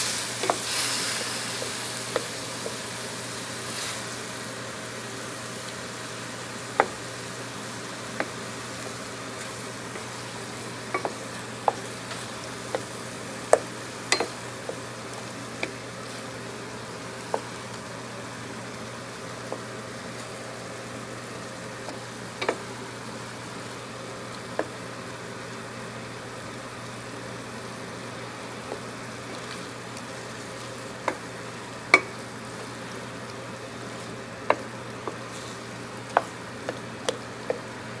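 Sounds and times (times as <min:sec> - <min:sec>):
meat sizzling in a pot: 0:00.0 - 0:38.0
wooden spatula stirring: 0:09.3 - 0:16.5, 0:28.6 - 0:38.0.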